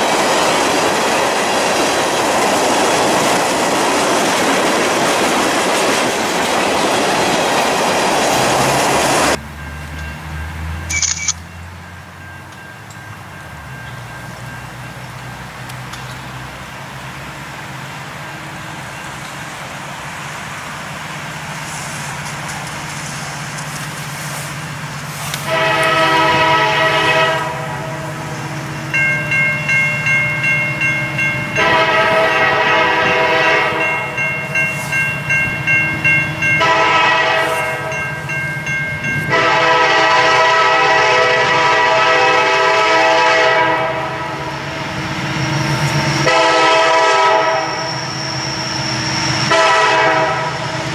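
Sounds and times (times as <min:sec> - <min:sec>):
diesel train engine rumble: 0:00.0 - 0:50.9
train horn blasts: 0:25.4 - 0:28.4, 0:31.5 - 0:34.2, 0:36.4 - 0:38.1, 0:39.2 - 0:44.5, 0:46.2 - 0:48.2, 0:49.4 - 0:50.9
bell ringing rapidly: 0:28.9 - 0:32.6, 0:33.8 - 0:36.8, 0:37.9 - 0:39.4.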